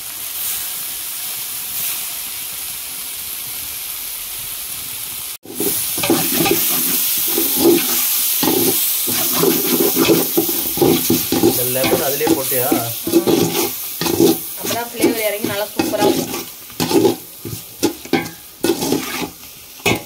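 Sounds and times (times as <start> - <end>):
food sizzling in metal pot: 0.0 - 20.0
metal ladle scraping pot: 5.5 - 20.0.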